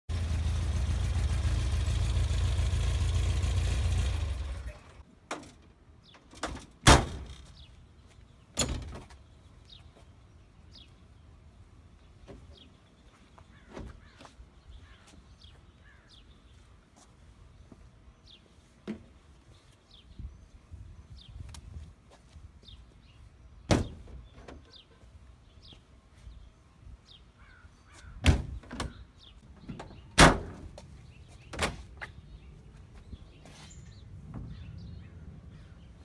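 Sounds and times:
van engine running: 0.1s - 5.0s
metal clunks of doors: 6.2s - 7.6s, 8.6s - 9.2s, 23.7s - 24.8s, 28.2s - 29.0s, 29.6s - 30.7s.

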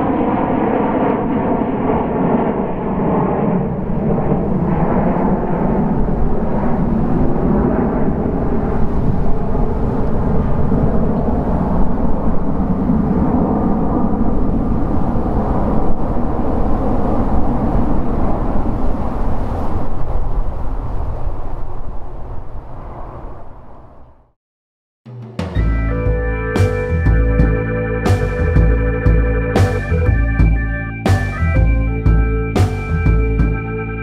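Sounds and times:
loud jet engine noise: 0.0s - 24.0s.

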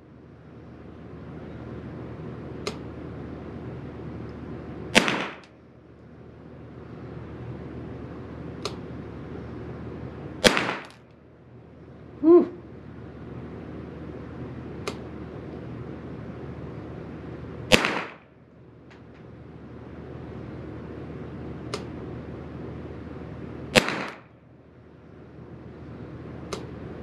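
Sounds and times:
rifle shots echoing in a room: 5.0s - 5.5s, 17.7s - 18.2s, 23.8s - 24.3s.

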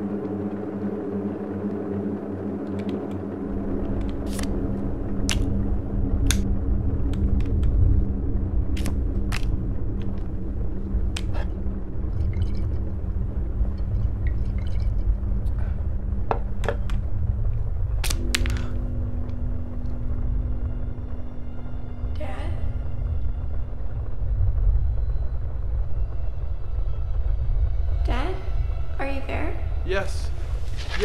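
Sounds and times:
held hum tones: 0.0s - 31.0s
low rumbling drone: 0.0s - 31.0s.

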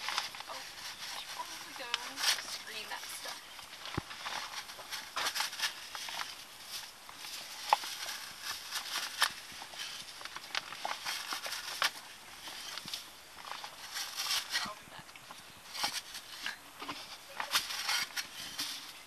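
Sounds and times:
hand tools scraping dirt: 15.6s - 19.0s.

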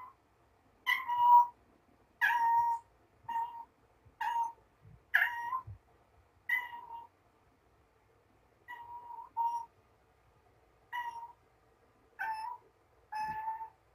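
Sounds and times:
cat meowing: 0.9s - 1.5s, 2.2s - 4.6s, 5.2s - 5.8s, 6.5s - 7.1s, 8.7s - 9.7s, 10.9s - 11.4s, 12.2s - 13.8s.

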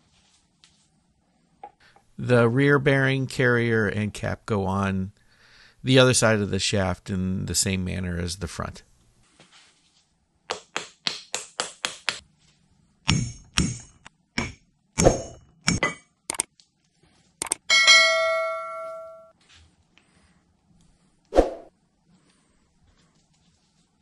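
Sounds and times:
hammer tapping metal: 13.1s - 16.2s
bell-like ding: 17.7s - 19.3s.

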